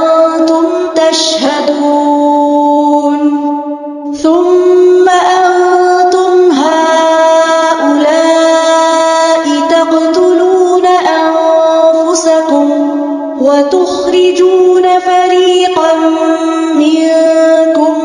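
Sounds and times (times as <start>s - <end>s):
person chanting recitation: 0.0s - 18.0s.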